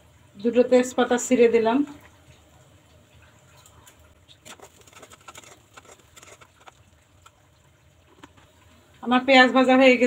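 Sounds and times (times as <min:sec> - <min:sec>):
hot oil crackling and spitting: 0:02.1 - 0:09.0.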